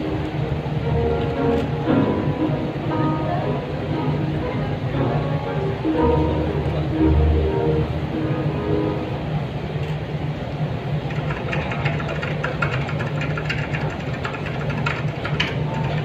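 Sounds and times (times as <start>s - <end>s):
low engine-like rumble: 0.0s - 16.0s
rapid patter of short clicks: 11.1s - 16.0s.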